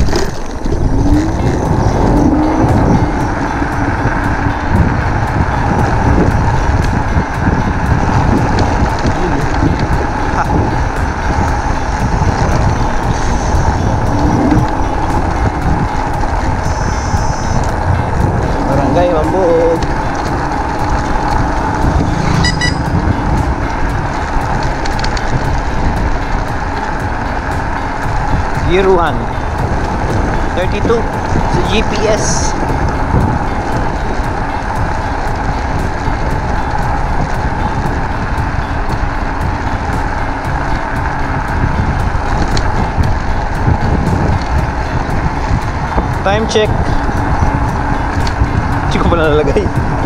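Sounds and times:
wind and road rumble: 0.0s - 50.0s
high horn beeps: 20.8s - 24.1s.

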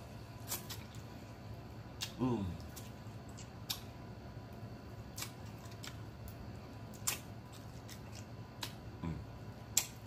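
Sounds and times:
lip smacks and wet clicks: 2.0s - 4.0s, 5.1s - 8.8s, 9.7s - 10.0s.

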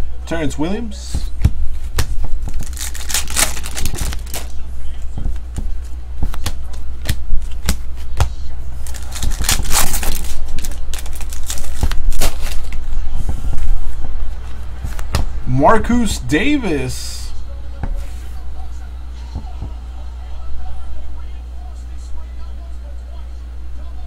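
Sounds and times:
steady low hum: 0.0s - 24.0s
foil wrapper crinkling: 2.5s - 4.6s, 8.8s - 12.8s.

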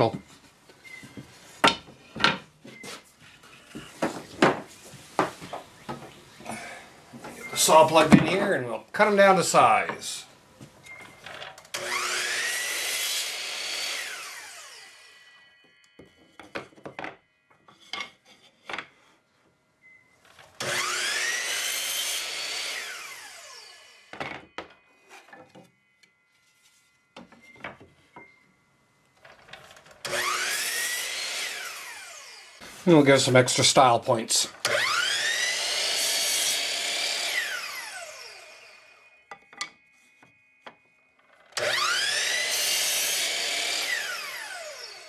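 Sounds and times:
wood pieces knocking: 1.6s - 2.5s, 3.8s - 6.2s, 7.2s - 8.5s, 16.0s - 19.0s, 24.1s - 25.7s, 39.3s - 40.8s
miter saw cutting wood: 11.7s - 16.1s, 20.6s - 24.2s, 30.0s - 39.3s, 41.5s - 45.0s.

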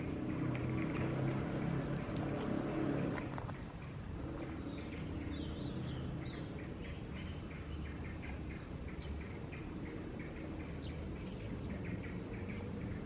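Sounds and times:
low motor hum: 0.0s - 6.7s
small birds chirping: 0.0s - 13.0s.

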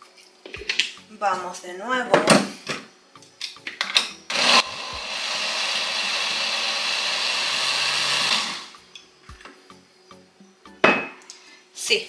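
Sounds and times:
blender motor running: 4.3s - 8.8s.

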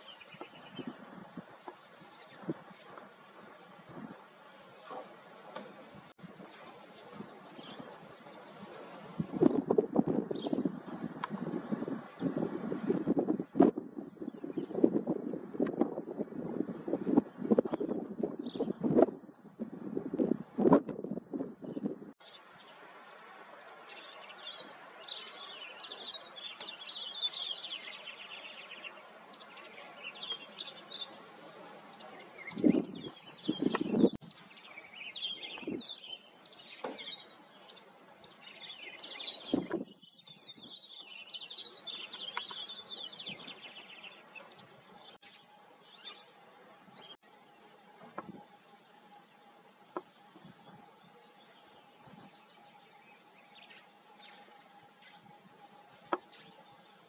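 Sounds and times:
songbirds chirping and trilling: 0.0s - 57.0s.

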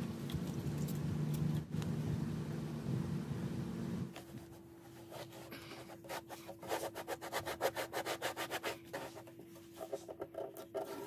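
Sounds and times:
rubbing strokes on sheet: 4.2s - 11.0s.

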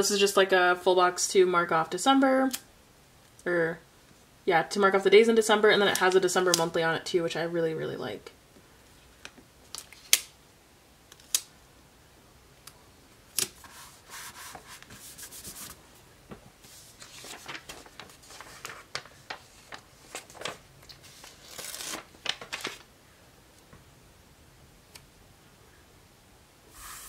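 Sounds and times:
paper rustling and crinkling: 13.4s - 15.8s, 16.6s - 22.9s.

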